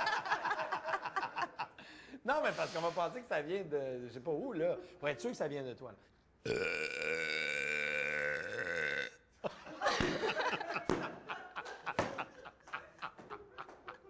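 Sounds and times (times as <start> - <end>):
people laughing: 0.0 - 1.8, 9.4 - 14.0
woman burping loudly: 6.4 - 9.2.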